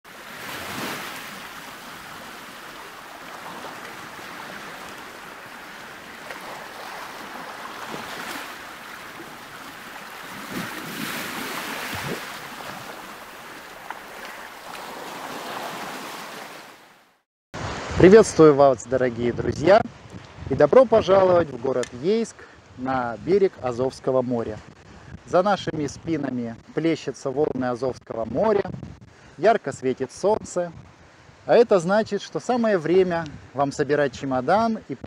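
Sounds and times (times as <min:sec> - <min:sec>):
wind: 0:00.0 - 0:35.0
sea surf washing on shore: 0:00.1 - 0:17.0, 0:17.6 - 0:26.4.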